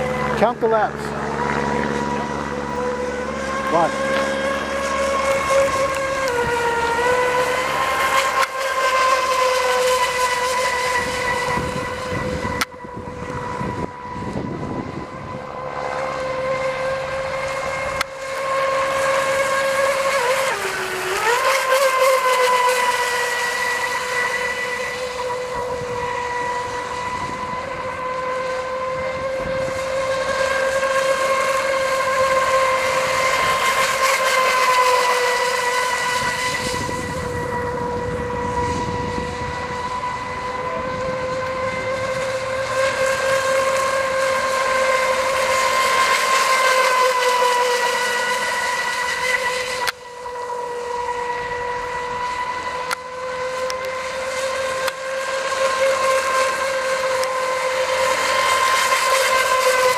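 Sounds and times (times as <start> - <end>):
rc speedboat high-pitched whine: 0.0 - 59.9.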